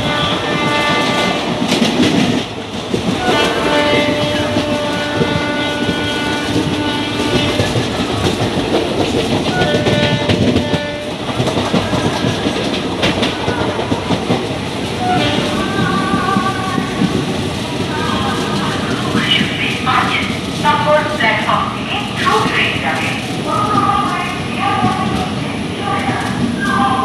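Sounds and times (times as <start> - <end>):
train wheels clattering over rail joints: 0.0 - 20.7.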